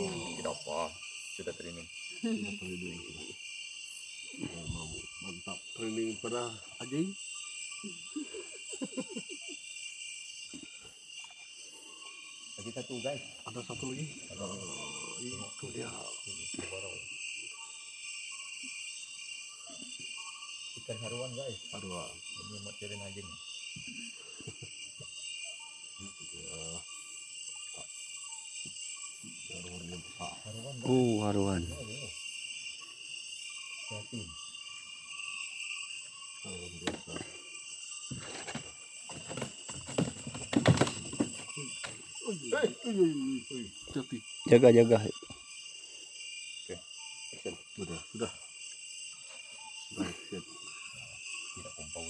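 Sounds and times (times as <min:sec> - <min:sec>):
night insect chorus: 0:00.0 - 0:52.0.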